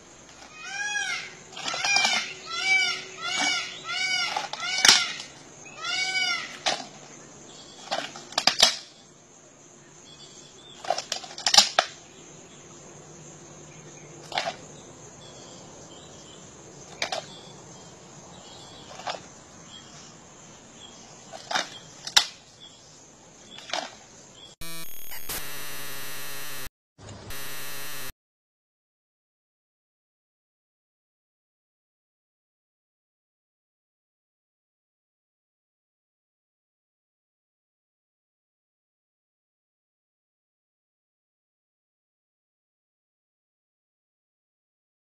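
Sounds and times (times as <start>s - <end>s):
loud steady noise: 24.6s - 28.1s.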